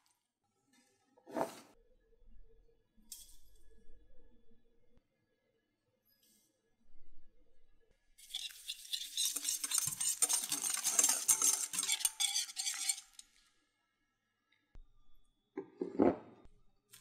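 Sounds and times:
whisk clinking against glass bowl: 8.3 - 13.2.

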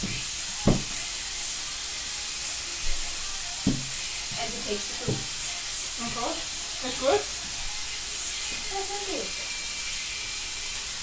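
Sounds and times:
food sizzling in a pan: 0.0 - 11.0.

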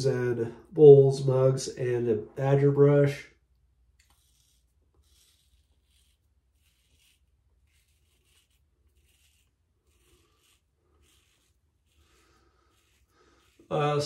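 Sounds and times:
razor scraping stubble: 4.0 - 14.0.

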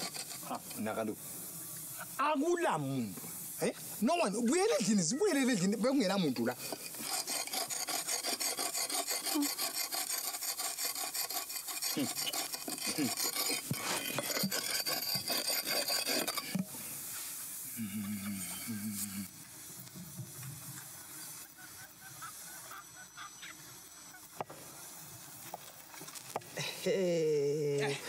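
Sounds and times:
rasping hand filing strokes: 0.0 - 0.9, 4.6 - 16.6.

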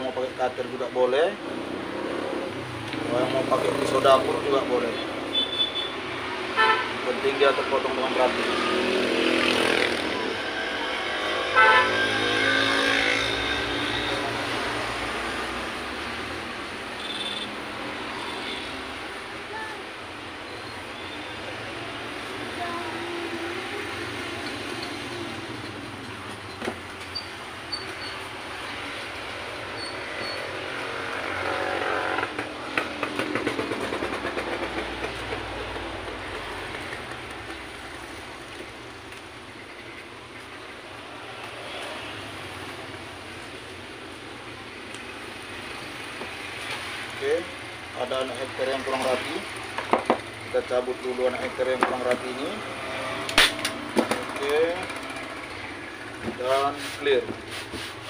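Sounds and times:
road traffic: 0.0 - 58.0
vehicle horn toot: 5.3 - 6.0, 6.6 - 6.9, 11.6 - 12.4.

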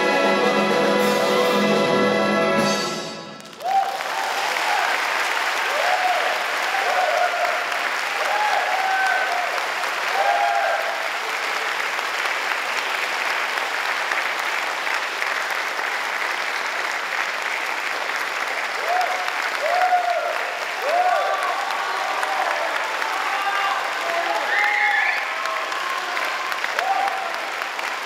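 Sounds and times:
audience applauding: 3.4 - 28.0
shouted cheers: 3.6 - 11.5, 18.7 - 28.0.

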